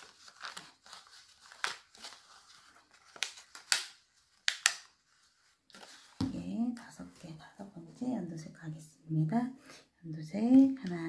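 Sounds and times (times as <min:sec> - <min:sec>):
plastic strips clicking and crackling: 0:00.0 - 0:05.0.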